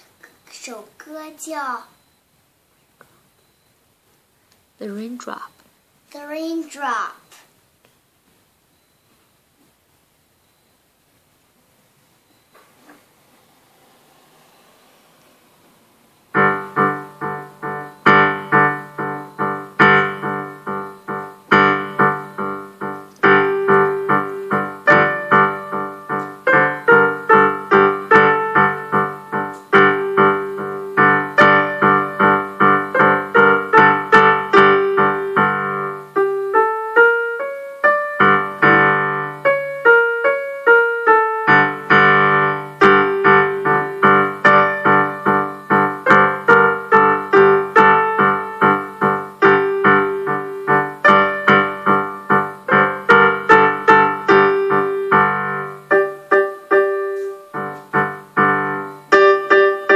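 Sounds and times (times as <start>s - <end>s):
electronic keyboard piano: 16.2s - 59.9s.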